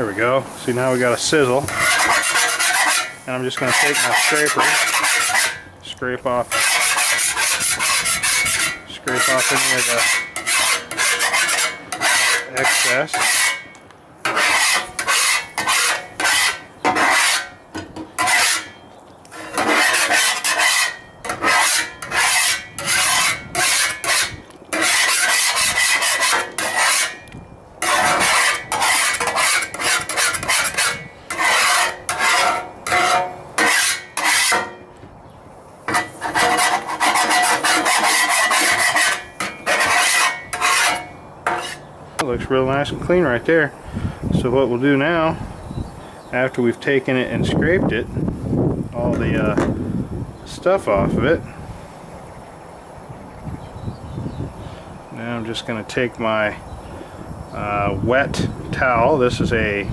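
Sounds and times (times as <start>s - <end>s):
scraper scraping metal griddle: 0.0s - 34.9s, 35.9s - 41.9s.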